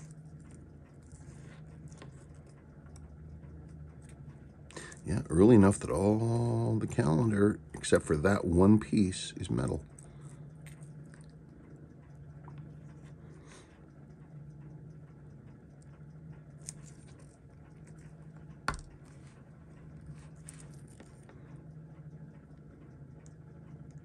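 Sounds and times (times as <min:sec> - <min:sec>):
low steady hum: 0:00.0 - 0:24.0
tweezers clicking and tapping: 0:15.6 - 0:19.1.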